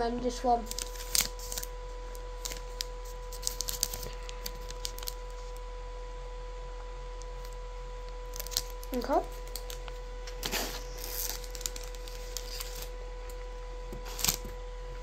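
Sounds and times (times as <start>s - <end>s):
faint high electrical whine: 0.0s - 15.0s
plastic wrapper crinkling: 0.7s - 5.6s, 8.3s - 12.9s, 14.1s - 14.5s.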